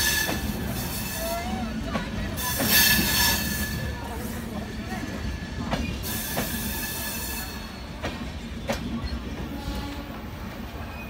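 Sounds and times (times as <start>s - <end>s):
wheels clacking on rail joints: 0.0s - 10.3s
train coaches rumbling past: 0.0s - 11.0s
high squeal and hiss: 2.4s - 4.0s, 6.0s - 7.9s.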